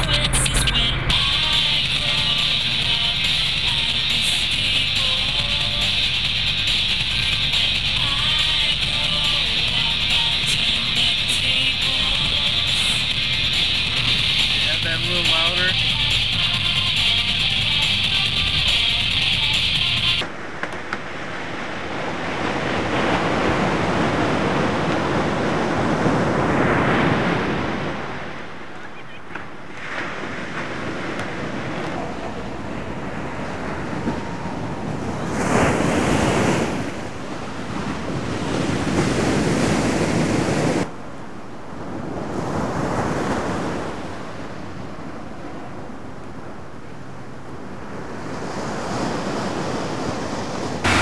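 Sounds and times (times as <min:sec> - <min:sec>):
surf breaking on a beach: 0:00.0 - 0:19.5, 0:20.2 - 0:51.0
wind buffeting the microphone: 0:29.4 - 0:40.9.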